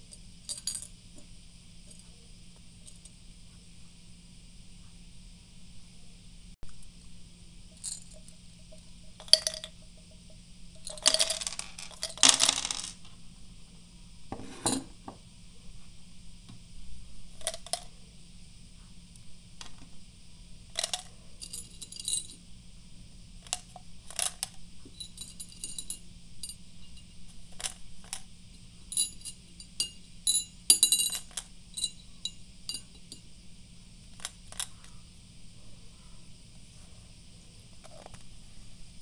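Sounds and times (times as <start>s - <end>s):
candies clicking and rattling: 10.9s - 13.1s.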